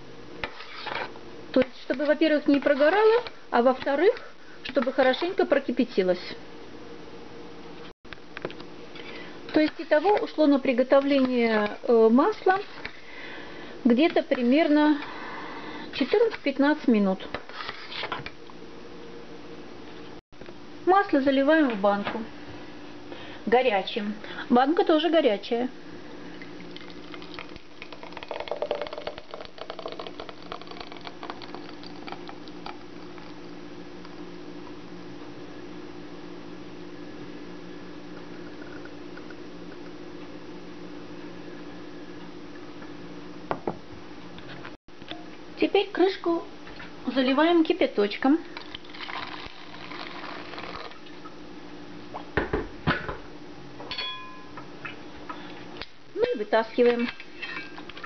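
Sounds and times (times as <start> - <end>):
steady low hum: 0.0 - 17.6, 18.2 - 58.0
thick liquid pouring into glass jar: 26.7 - 32.8, 48.6 - 51.0
ringing metallic clink: 53.9 - 54.5.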